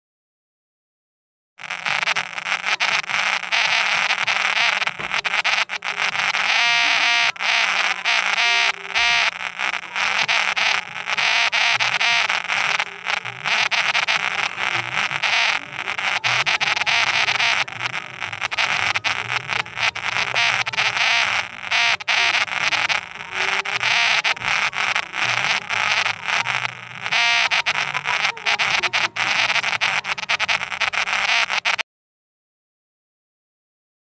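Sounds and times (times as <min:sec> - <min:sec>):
voices: 0:01.7 - 0:31.8.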